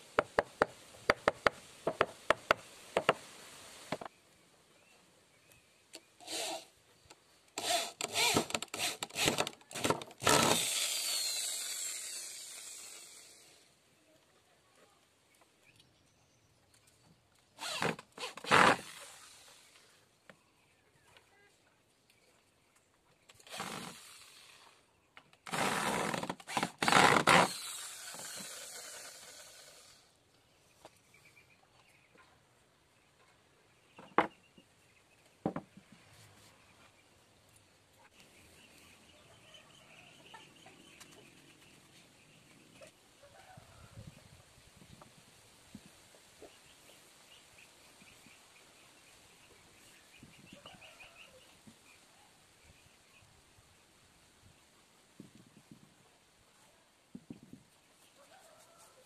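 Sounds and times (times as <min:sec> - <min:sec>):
electric drill boring into wood: 0:06.2 - 0:06.7, 0:07.6 - 0:13.6, 0:17.6 - 0:19.8, 0:23.4 - 0:24.8, 0:25.5 - 0:30.1.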